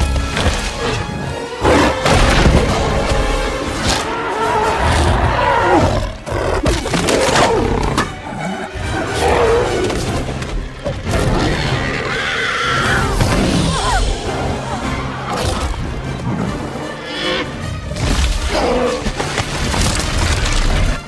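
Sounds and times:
orchestral score: 0.0 - 21.0
monster roars and growls: 1.7 - 17.6.

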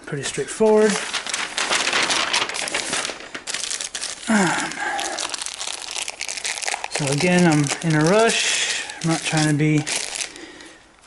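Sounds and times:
paper and plastic rustling: 0.1 - 10.8.

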